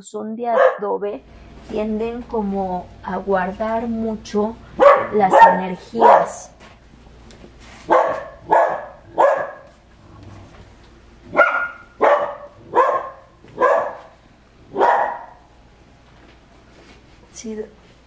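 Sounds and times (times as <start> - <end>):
dog barking: 0.6 - 0.9, 4.8 - 6.5, 7.9 - 9.8, 11.3 - 14.1, 14.7 - 15.4.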